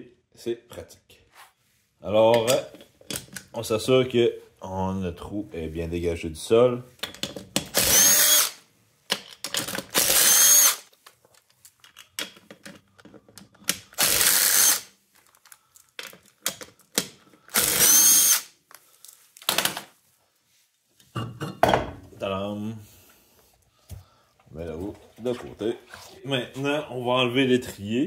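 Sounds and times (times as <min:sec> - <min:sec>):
clicks of tool and nuts: 0:07.0 - 0:07.8, 0:09.1 - 0:10.0, 0:11.0 - 0:14.0, 0:15.3 - 0:17.2.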